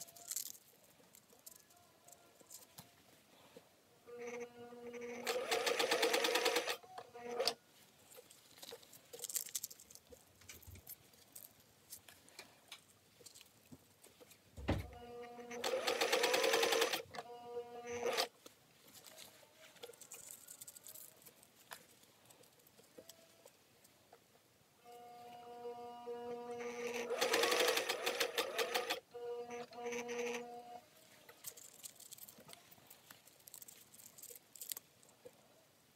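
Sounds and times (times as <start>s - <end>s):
sewing machine stitching: 4.2s - 7.6s, 15.3s - 17.2s, 17.8s - 18.3s, 26.5s - 30.5s
soft thump: 14.6s - 14.9s.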